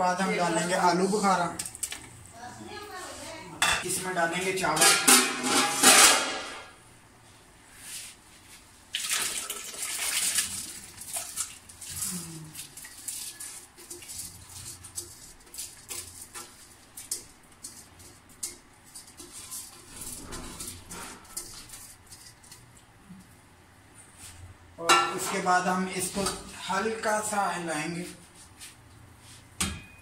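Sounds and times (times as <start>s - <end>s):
rice splashing into water: 8.9s - 11.9s.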